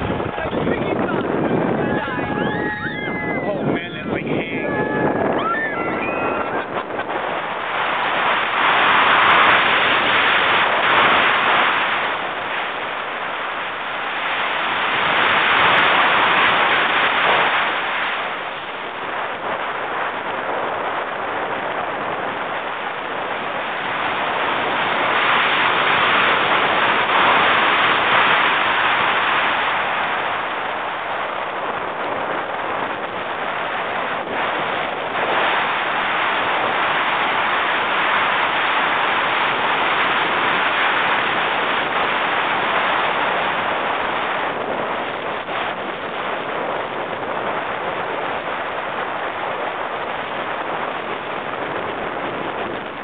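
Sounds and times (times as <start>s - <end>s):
roller coaster train on track: 0.0s - 7.4s
wind rushing over microphone: 0.0s - 53.0s.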